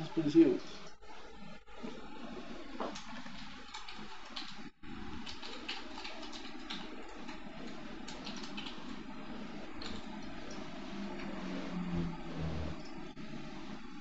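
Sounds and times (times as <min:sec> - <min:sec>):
low background hum: 0:00.0 - 0:14.0
keyboard typing: 0:03.0 - 0:09.1.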